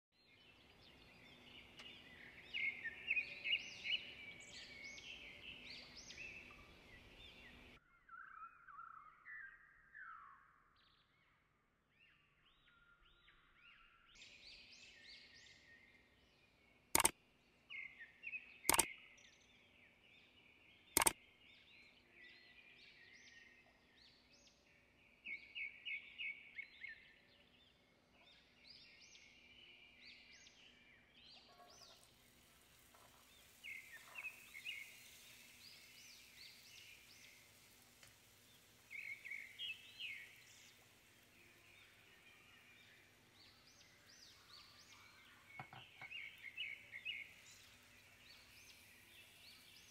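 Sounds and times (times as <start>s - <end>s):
small birds chirping and trilling: 0.2s - 11.3s, 12.0s - 49.9s
faint steady hiss: 14.2s - 49.9s
sharp clicks: 17.0s - 17.2s, 21.0s - 21.2s.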